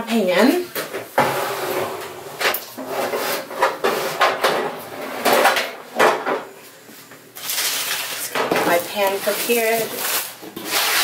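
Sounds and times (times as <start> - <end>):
kitchenware clattering and scraping: 0.8 - 6.5.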